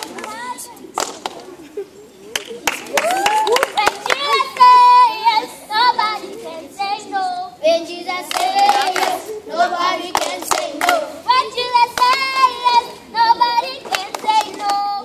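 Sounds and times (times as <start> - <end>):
hand claps: 0.0 - 1.5, 2.3 - 4.8, 8.3 - 9.2, 10.1 - 11.1, 11.9 - 12.3, 13.8 - 14.9
children singing together: 4.1 - 15.0.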